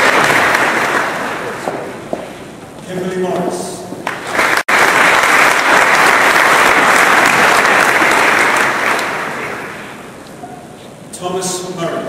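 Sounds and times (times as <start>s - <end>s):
audience applauding: 0.0s - 2.0s, 4.0s - 10.0s.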